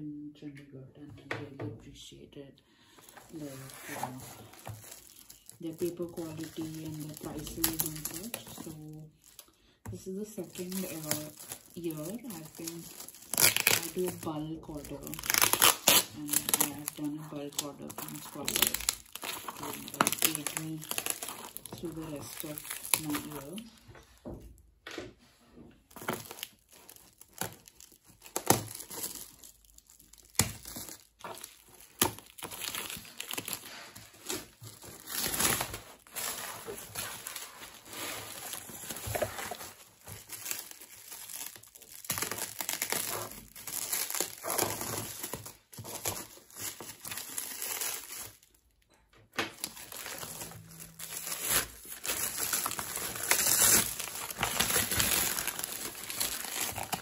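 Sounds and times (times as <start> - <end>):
plastic wrap crinkling: 2.9 - 24.2, 25.8 - 57.0.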